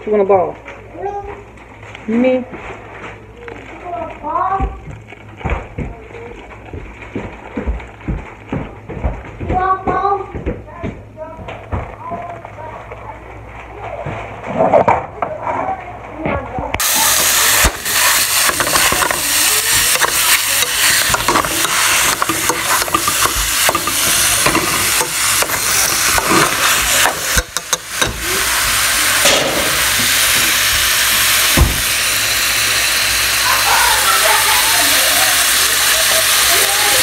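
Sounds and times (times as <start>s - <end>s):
meat sizzling in a pot: 16.8s - 37.0s
utensil scraping a pot: 16.9s - 28.9s.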